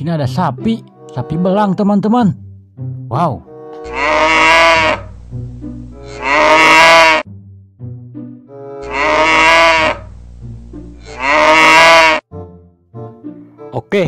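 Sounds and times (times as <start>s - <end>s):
soft background music: 0.0s - 14.0s
cow mooing: 3.7s - 5.2s, 6.0s - 7.3s, 8.8s - 10.1s, 11.0s - 12.2s.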